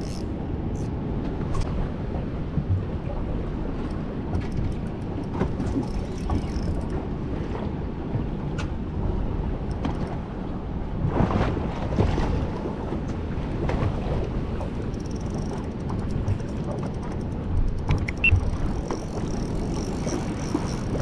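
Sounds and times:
light clicks: 14.8 - 21.0.

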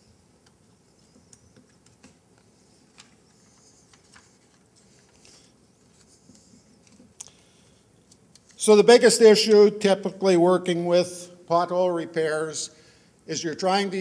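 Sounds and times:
small clicks and rustles: 0.4 - 8.6.

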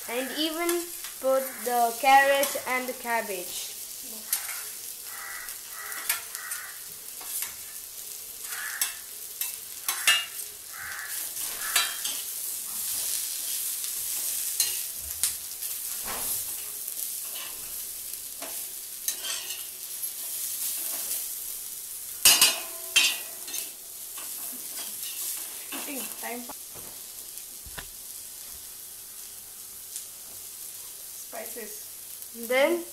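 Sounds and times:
vegetables sizzling in oil: 0.0 - 32.9
spatula clanking on pan: 5.9 - 6.6, 8.5 - 12.3, 18.4 - 19.7, 22.2 - 25.3.

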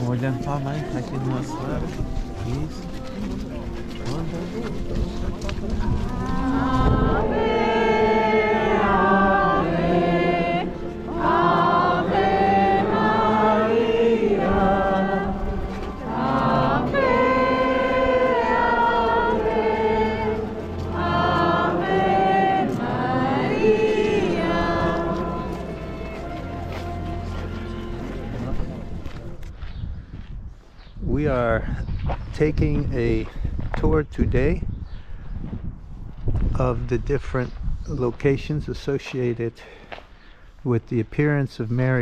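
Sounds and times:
choir singing: 5.9 - 29.4.

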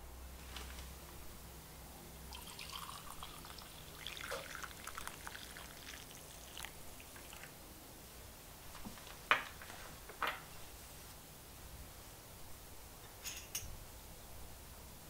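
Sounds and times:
coffee pouring into mug: 2.3 - 7.6.

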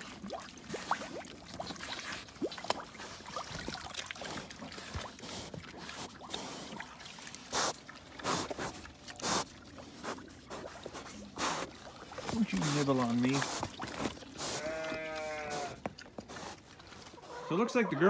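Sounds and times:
pigs slurping from a trough: 0.0 - 17.9.

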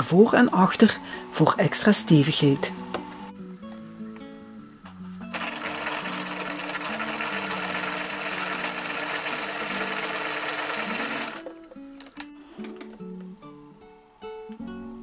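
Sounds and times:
soft guitar music: 0.0 - 15.0
sewing machine stitching: 5.3 - 12.2.

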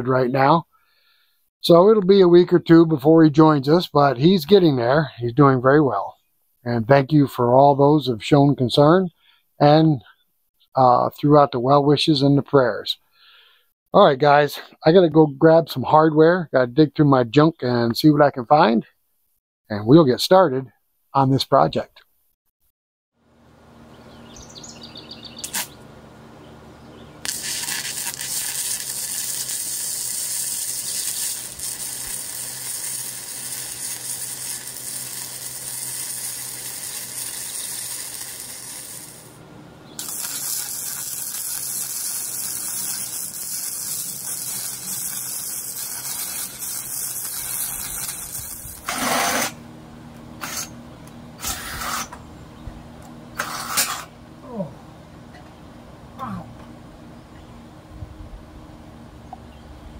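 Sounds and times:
arc welding crackling hiss: 25.4 - 25.8, 27.2 - 39.4, 40.0 - 49.6
low steady hum: 47.8 - 59.9.

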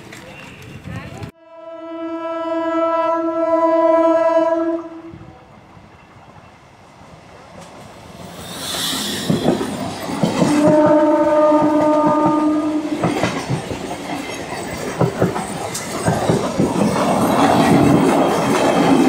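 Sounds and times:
train horn: 1.4 - 5.3, 10.3 - 13.2
train wheels clattering: 7.6 - 19.0.

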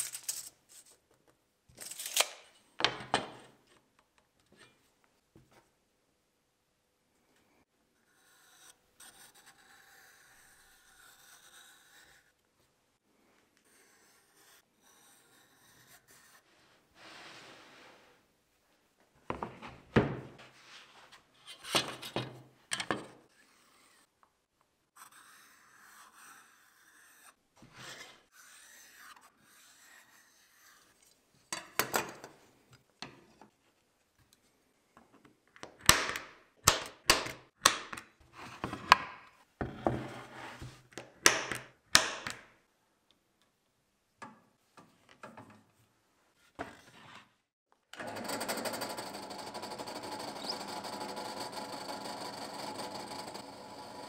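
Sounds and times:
pen scratching on board: 25.0 - 27.2.

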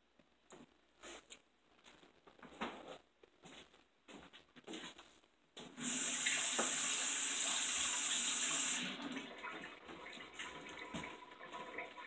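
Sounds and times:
water running from a tap: 5.8 - 12.0.

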